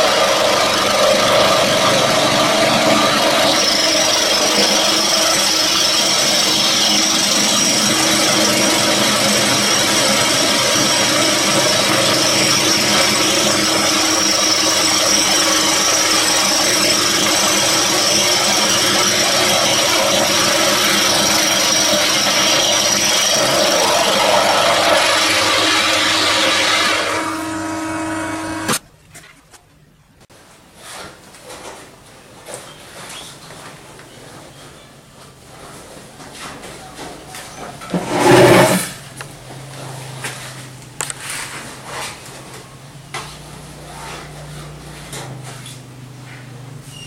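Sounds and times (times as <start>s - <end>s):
milling machine cutting metal: 0.0s - 28.8s.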